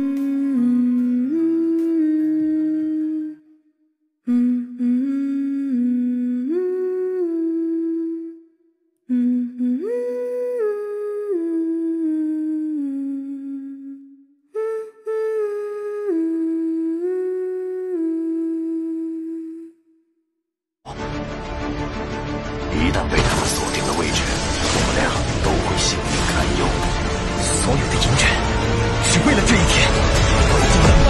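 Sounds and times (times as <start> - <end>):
person humming slow melody: 0.0 - 20.0.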